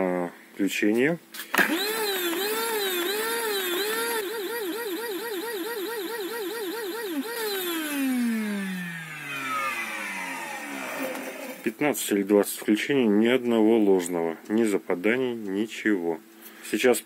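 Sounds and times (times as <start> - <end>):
vacuum cleaner motor whine: 1.6 - 11.7.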